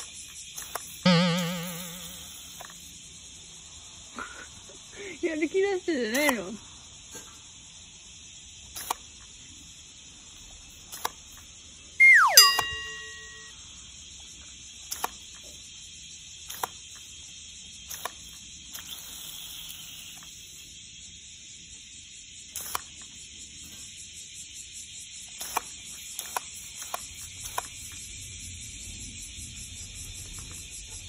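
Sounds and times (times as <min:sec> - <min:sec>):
steady high hiss: 0:00.0 - 0:23.5.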